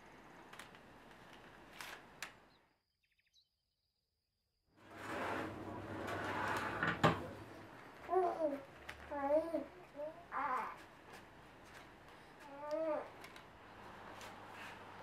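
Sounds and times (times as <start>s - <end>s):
oven whirring and humming: 4.8s - 8.1s.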